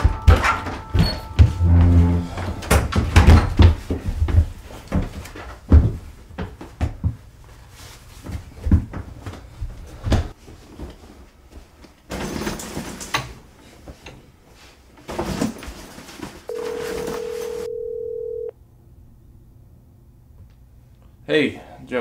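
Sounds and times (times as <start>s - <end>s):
telephone dial tone: 16.5s - 18.5s.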